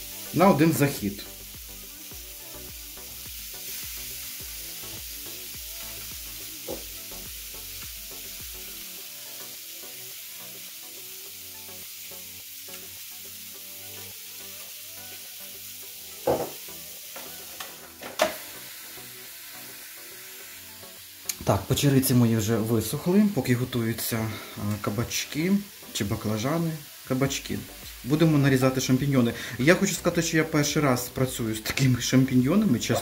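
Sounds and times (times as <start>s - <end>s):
vegetables sizzling on a grill: 0.0s - 33.0s.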